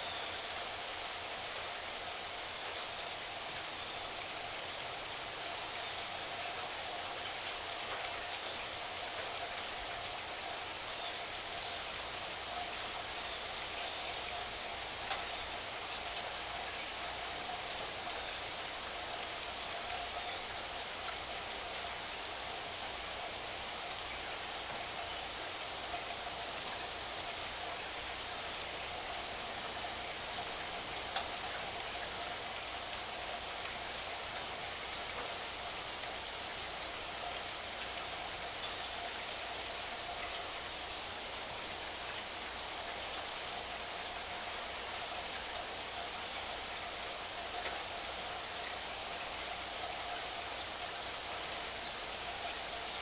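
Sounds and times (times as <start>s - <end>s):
steady rain hiss: 0.0s - 53.0s
raindrops ticking: 11.0s - 21.4s, 24.0s - 40.8s.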